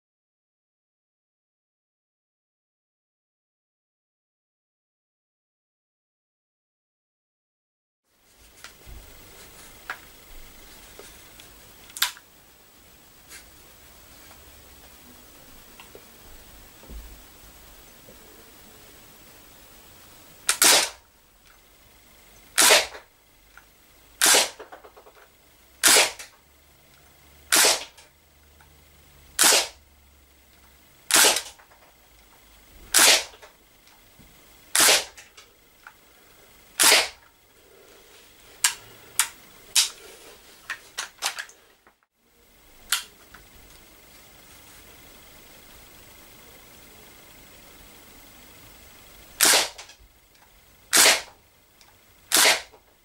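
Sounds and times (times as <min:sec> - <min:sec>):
bb rifle shots cracking: 0:20.5 - 0:21.0, 0:22.6 - 0:23.0, 0:24.2 - 0:24.8, 0:25.8 - 0:26.3, 0:27.5 - 0:28.0, 0:29.4 - 0:29.8, 0:31.1 - 0:31.6, 0:32.9 - 0:33.5, 0:34.7 - 0:35.2, 0:36.8 - 0:37.2, 0:49.4 - 0:49.9, 0:50.9 - 0:51.3, 0:52.3 - 0:52.8.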